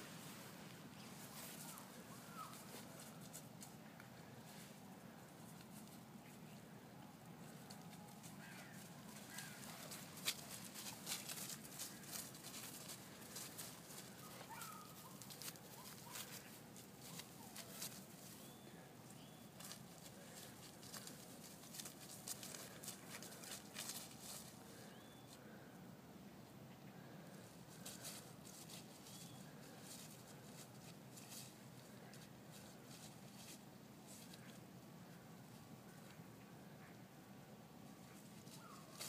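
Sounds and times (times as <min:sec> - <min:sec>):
faint bird chirps: 0:01.0 - 0:02.8, 0:18.3 - 0:19.6, 0:24.8 - 0:25.4, 0:29.0 - 0:29.5, 0:37.9 - 0:39.0
dry leaves crackling: 0:07.4 - 0:24.9, 0:27.7 - 0:36.0, 0:38.1 - 0:39.0.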